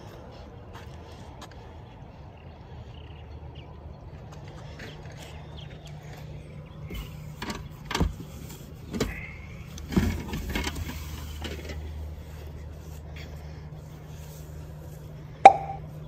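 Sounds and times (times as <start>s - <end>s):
low steady hum: 0.0s - 16.0s
deeper hum: 15.0s - 16.0s.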